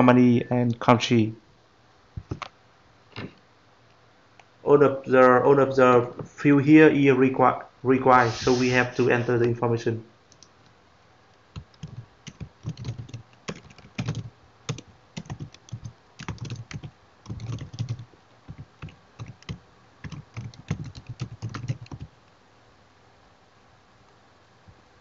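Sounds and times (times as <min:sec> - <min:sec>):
computer keyboard typing: 0:02.2 - 0:02.5, 0:11.5 - 0:22.1.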